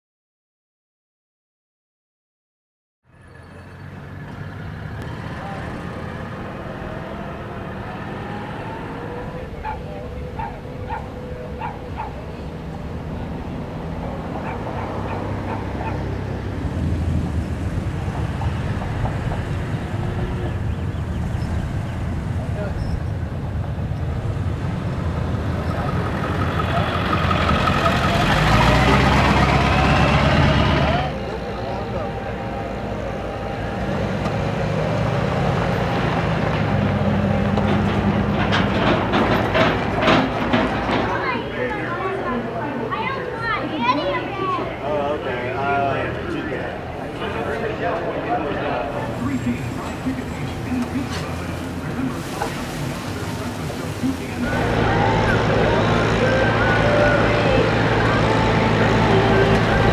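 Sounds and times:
truck engines rumbling: 0:03.0 - 0:59.9
dog barking: 0:09.6 - 0:12.3, 0:14.4 - 0:16.1.

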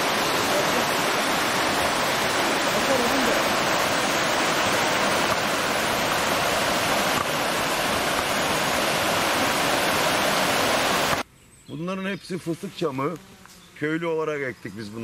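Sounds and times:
stream flowing over rocks: 0:00.0 - 0:11.2.

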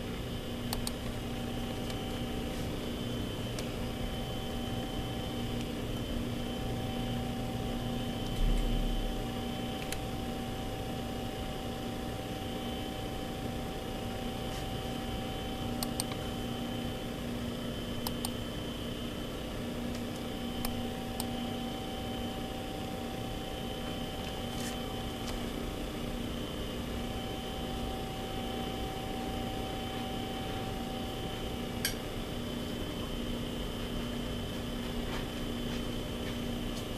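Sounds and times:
electrical hum: 0:00.0 - 0:36.9
sharp click: 0:00.7 - 0:01.1, 0:18.0 - 0:18.4.

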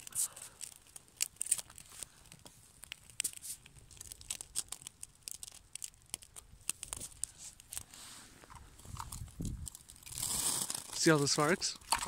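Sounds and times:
twig fire crackling and popping: 0:00.0 - 0:12.0.

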